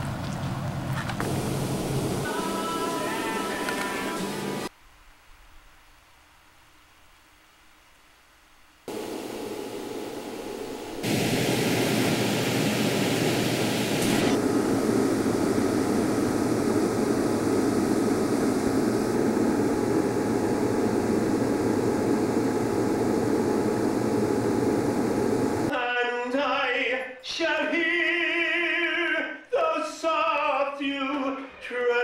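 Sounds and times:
high hiss: 0:08.9 - 0:19.5
loud steady rushing noise: 0:08.9 - 0:25.7.

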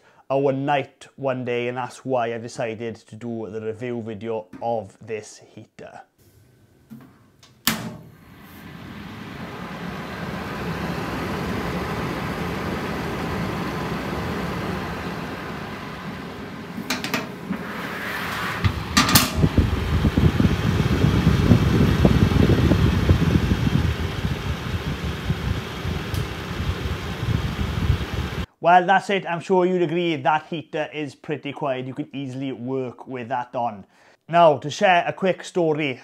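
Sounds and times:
heater switch click: 0:06.9 - 0:08.2, 0:16.7 - 0:17.6, 0:18.6 - 0:19.7, 0:26.0 - 0:26.4
fan heater whirring: 0:06.9 - 0:28.5
air buffeting microphone: 0:08.1 - 0:28.5.

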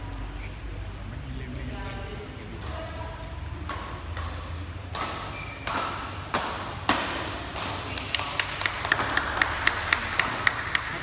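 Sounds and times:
rackets hitting shuttlecock: 0:03.6 - 0:09.4.

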